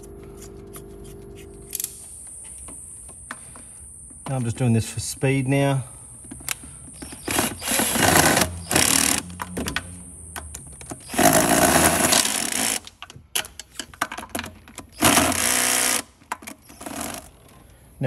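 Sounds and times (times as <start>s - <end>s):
bolts and tool clicking and rattling: 6.3s - 17.6s
cordless drill spinning bolts: 6.4s - 9.8s, 10.5s - 17.5s.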